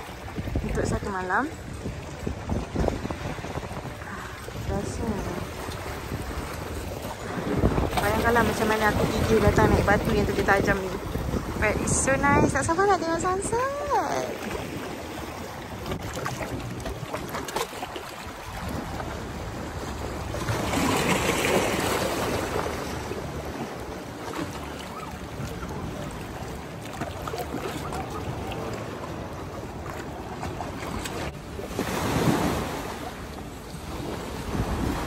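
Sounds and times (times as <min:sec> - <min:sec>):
wind buffeting microphone: 0:00.0 - 0:22.6
sea waves lapping against boulders: 0:00.0 - 0:35.0.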